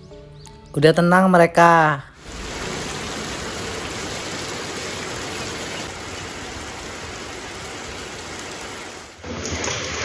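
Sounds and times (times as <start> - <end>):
rain falling: 2.2 - 10.0.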